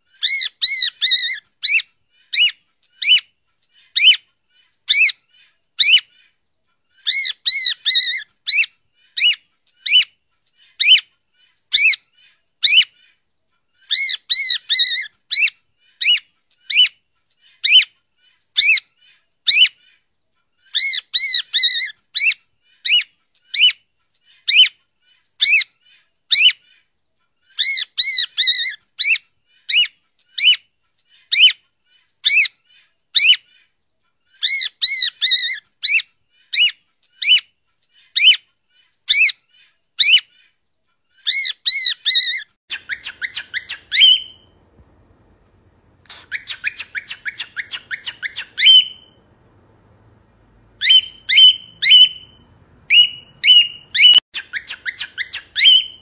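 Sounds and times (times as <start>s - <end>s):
cockatiel whistling: 42.7s - 49.3s, 50.7s - 56.0s.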